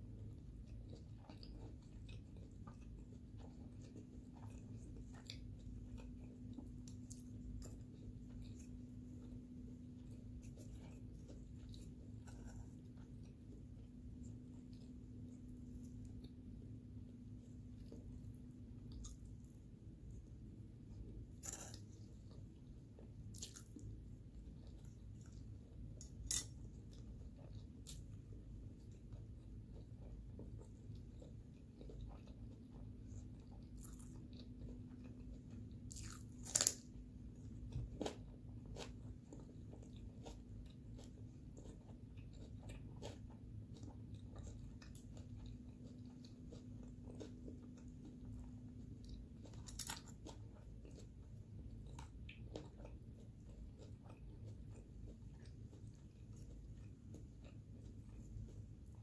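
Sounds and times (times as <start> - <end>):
chewing crisp cucumber: 0.0 - 59.0.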